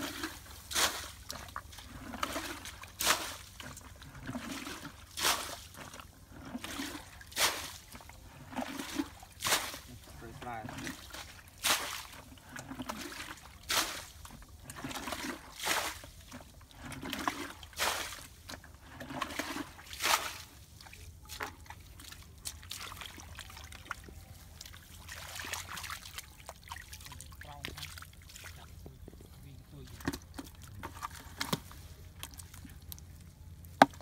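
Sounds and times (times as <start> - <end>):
hands splashing water in metal basin: 10.7 - 12.2, 24.6 - 28.8
water trickling: 20.8 - 31.4.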